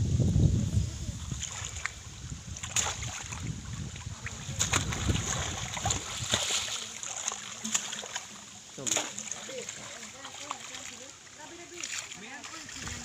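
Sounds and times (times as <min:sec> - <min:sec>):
wind rumbling on microphone: 0:00.0 - 0:06.8, 0:12.6 - 0:13.0.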